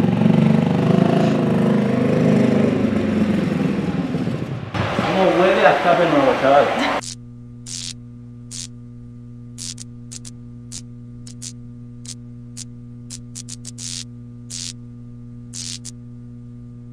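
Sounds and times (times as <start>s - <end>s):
neon sign electrical hum: 4.8s - 16.9s
static crackles: 7.0s - 8.8s, 9.6s - 14.8s, 15.5s - 16.0s.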